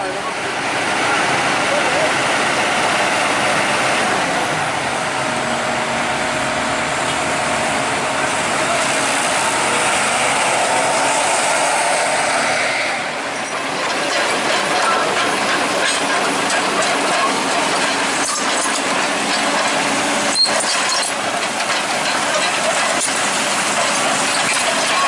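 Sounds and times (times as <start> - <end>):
diesel engine running: 0.0 - 25.0
excavator tracks clattering: 6.8 - 25.0.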